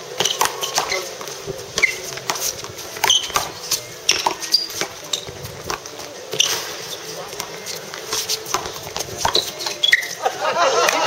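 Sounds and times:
shoes squeaking on court: 0.0s - 11.0s
handball smacked by hands: 2.1s - 4.9s, 7.4s - 9.8s.

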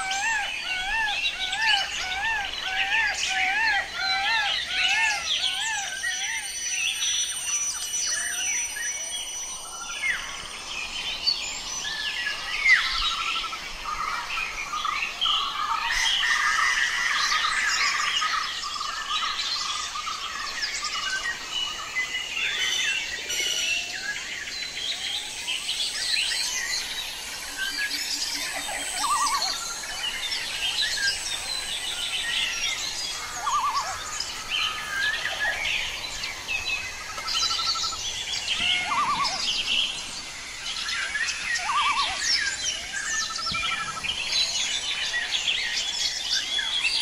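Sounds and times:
birds chirping and singing: 0.0s - 47.0s.

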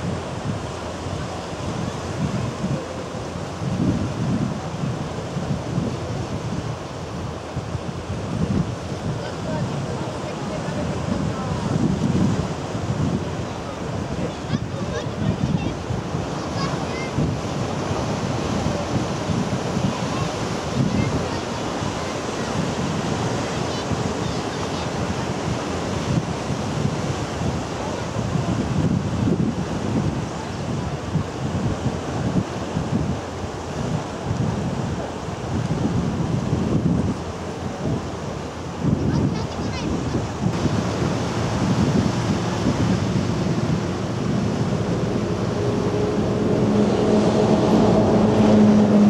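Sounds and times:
boat engine droning: 0.0s - 49.0s
sea surf breaking on rocks: 0.0s - 49.0s.

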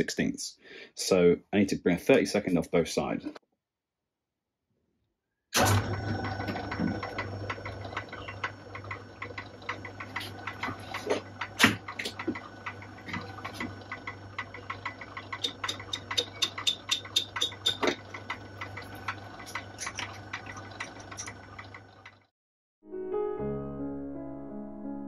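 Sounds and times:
lathe motor hum: 5.6s - 22.3s
cutting tool ticking: 6.2s - 22.2s.

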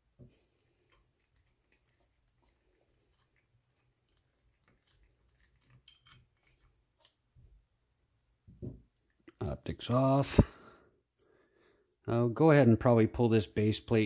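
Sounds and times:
faint clicks of metal parts: 0.8s - 7.2s.

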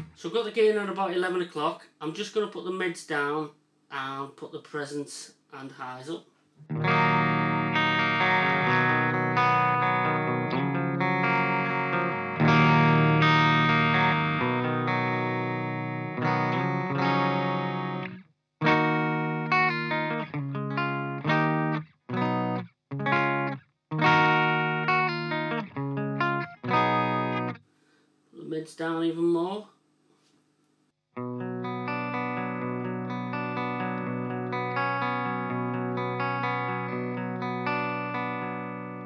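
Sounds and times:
clean electric guitar chords: 6.6s - 27.6s, 31.2s - 39.0s.

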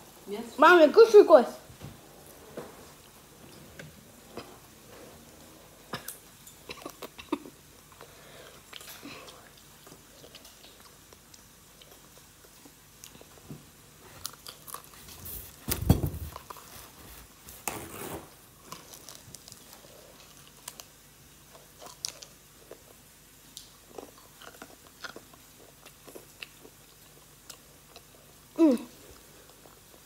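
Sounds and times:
chewing crispy chicken: 5.8s - 15.3s, 18.6s - 30.0s.

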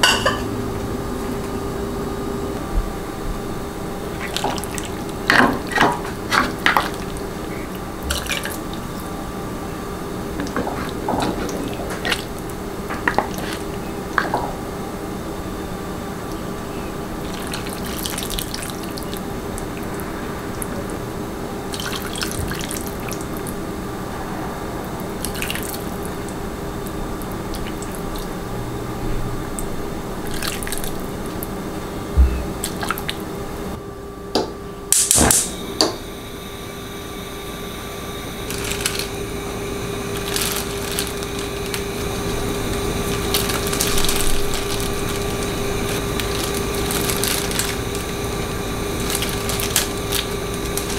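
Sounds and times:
plastic glove crinkling: 10.4s - 14.5s, 38.5s - 39.2s, 40.1s - 50.9s
broth pouring and dripping: 17.2s - 23.6s.

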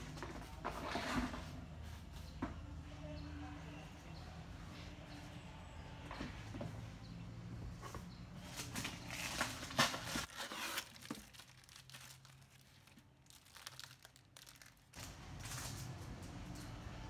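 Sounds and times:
plastic wrap and foam crinkling: 8.6s - 16.2s.

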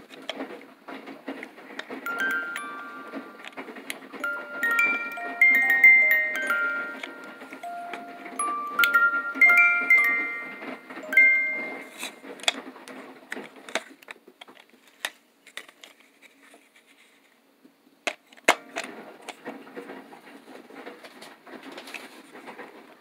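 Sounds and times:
plastic toy clicks and knocks: 1.3s - 12.6s
music box note: 2.1s - 12.2s.

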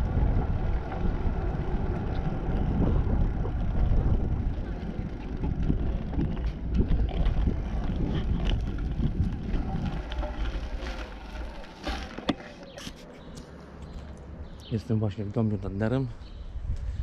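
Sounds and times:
wind buffeting microphone: 0.0s - 11.5s, 16.2s - 17.0s.

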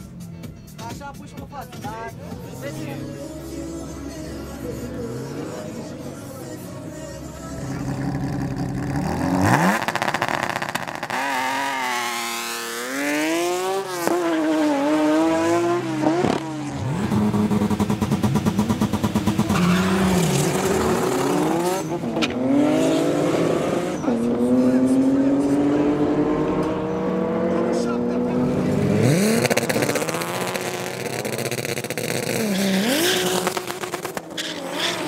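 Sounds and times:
racing car engines at full throttle: 0.0s - 35.0s
fast engine stutter: 7.7s - 35.0s.

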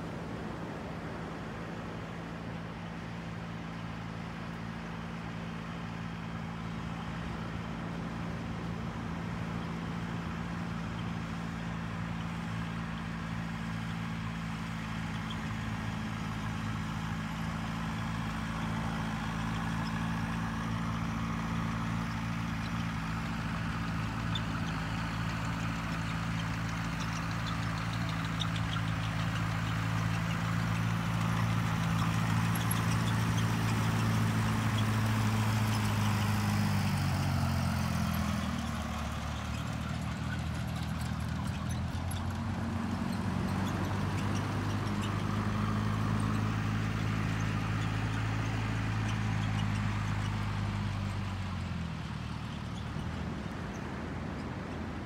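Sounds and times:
engine idling: 5.3s - 54.4s.

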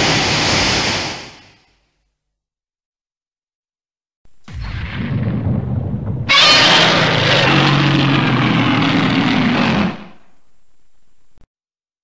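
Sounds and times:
low rumble: 4.3s - 11.0s
monster roar screeching: 6.3s - 10.3s.

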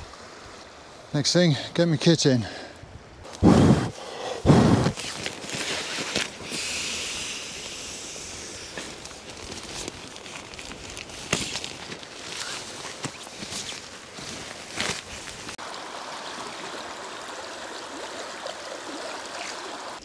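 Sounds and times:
shallow stream rushing: 0.0s - 20.0s
low wind buffets: 2.7s - 15.6s
nylon sack rustling: 4.7s - 6.5s, 8.7s - 15.6s.

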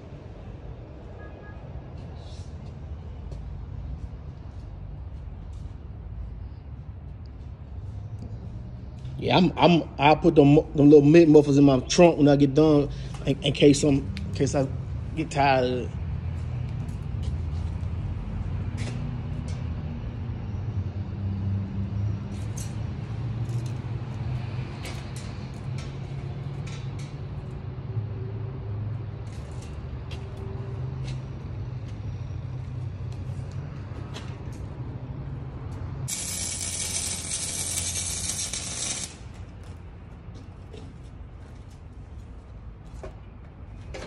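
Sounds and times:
sharp hissing clicks: 36.1s - 39.3s.

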